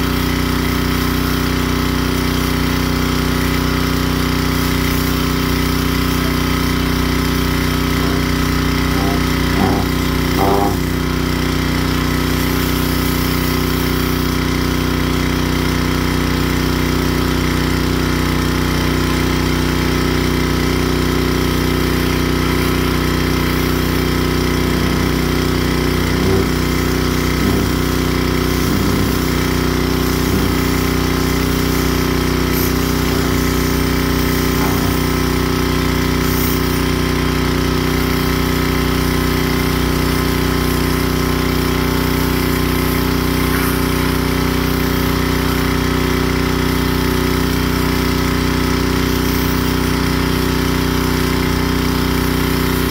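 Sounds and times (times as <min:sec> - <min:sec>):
pressure washer engine running: 0:00.0 - 0:52.9.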